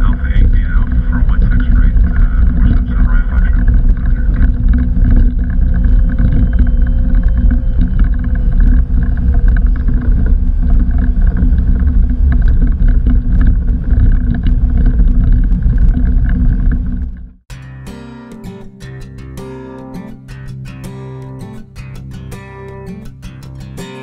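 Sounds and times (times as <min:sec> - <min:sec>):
jet engines rumbling and whining: 0:00.0 - 0:17.3
strummed acoustic guitar music: 0:17.5 - 0:24.0.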